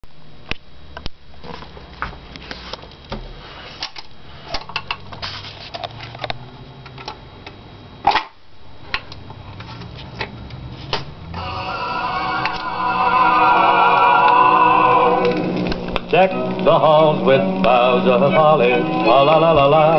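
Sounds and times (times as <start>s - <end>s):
low hum: 11.1s - 18.1s
record playing music: 11.3s - 19.9s.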